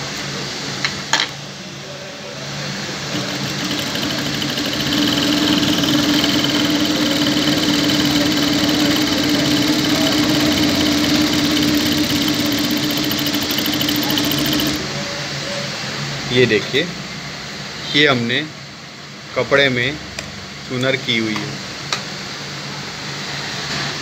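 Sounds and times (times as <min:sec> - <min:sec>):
sewing machine stitching: 0:03.0 - 0:14.8.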